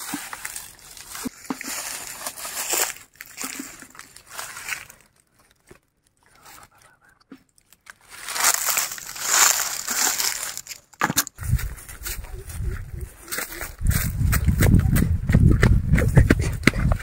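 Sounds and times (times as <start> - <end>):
dry leaves crackling: 0.0 - 6.6, 7.6 - 14.2.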